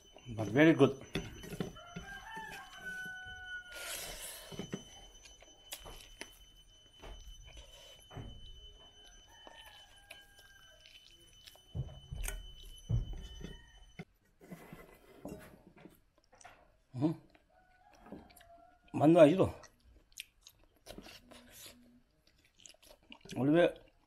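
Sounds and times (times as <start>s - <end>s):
rooster crowing: 1.6s - 4.4s, 9.1s - 10.9s, 17.5s - 19.0s.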